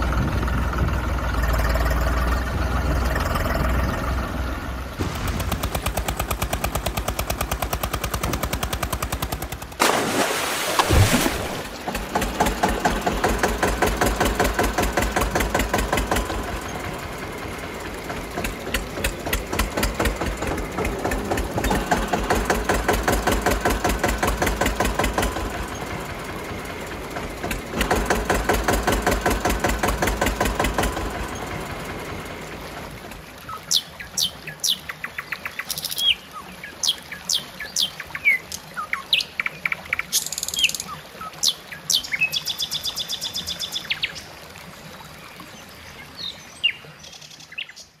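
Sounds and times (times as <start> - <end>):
tractor engine chugging: 0.0 - 9.8, 11.7 - 33.4
birds chirping: 33.4 - 44.3.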